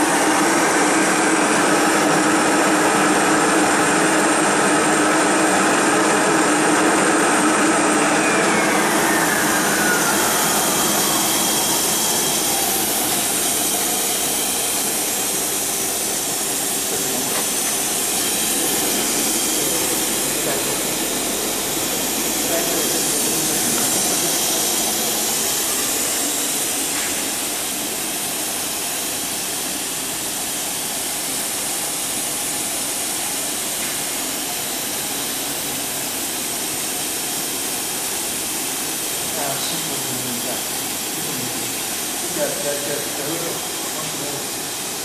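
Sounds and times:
vacuum pump running: 0.0s - 45.0s
spindle whine spinning down: 6.0s - 27.8s.

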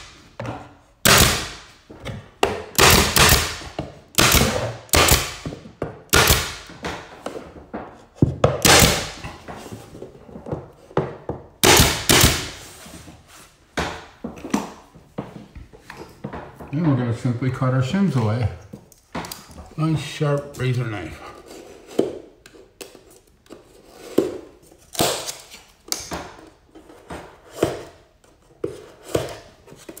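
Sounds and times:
nail gun firing: 1.0s - 1.8s, 2.7s - 5.4s, 6.1s - 6.7s, 8.6s - 9.2s, 11.6s - 12.6s.

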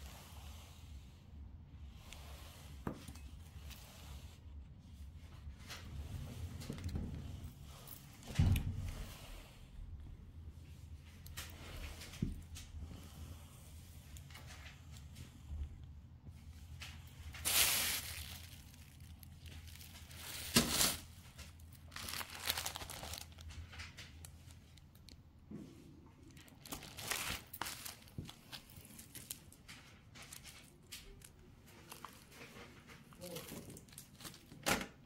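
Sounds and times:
packaging crinkling: 17.1s - 25.2s, 26.3s - 32.5s.

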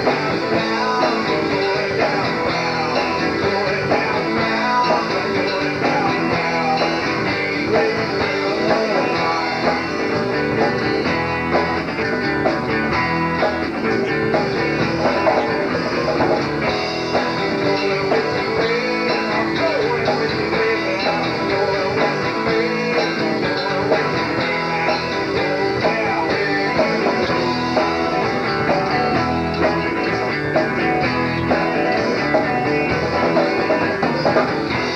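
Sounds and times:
rock band playing: 0.0s - 34.9s.

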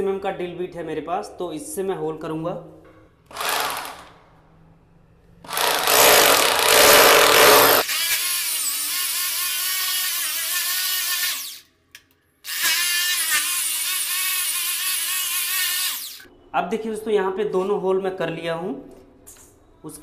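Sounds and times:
electric drill drilling into tile: 3.3s - 4.0s, 5.5s - 11.7s, 12.5s - 16.3s.

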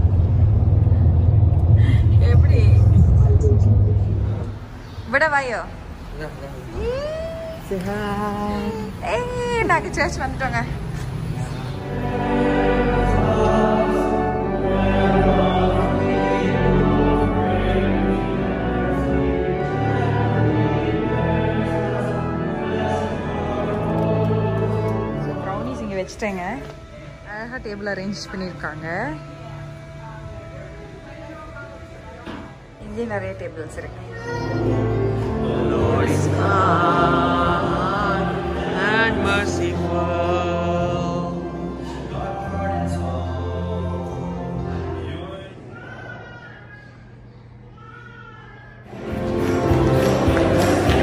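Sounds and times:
sustained low notes: 0.0s - 4.9s
voices singing chant-like hymn: 6.8s - 26.0s, 34.5s - 46.3s, 48.9s - 51.0s
music with long-held notes: 11.8s - 33.2s, 34.2s - 45.5s, 48.9s - 51.0s.

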